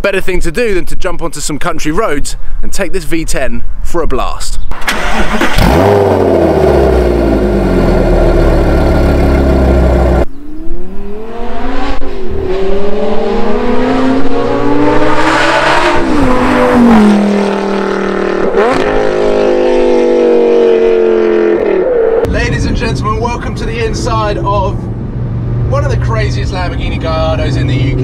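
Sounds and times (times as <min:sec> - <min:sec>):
sports car engine idling: 0:06.2 - 0:10.2.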